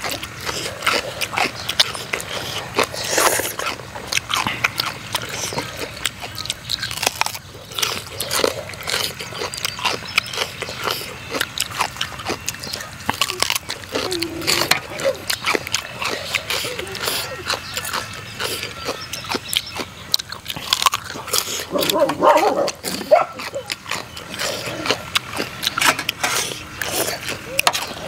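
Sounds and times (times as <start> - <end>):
chewing and lip-smacking: 0.0 - 28.0.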